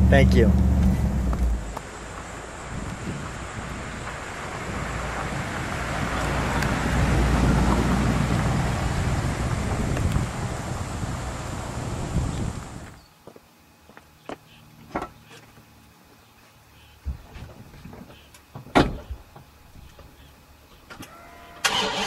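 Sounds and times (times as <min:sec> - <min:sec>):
car engine and exhaust passing: 0:00.0 - 0:13.0.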